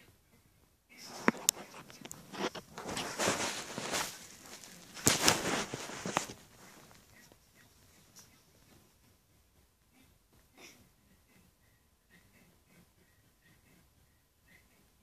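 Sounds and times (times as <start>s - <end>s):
rustling and rubbing on microphone: 0.9s - 9.2s.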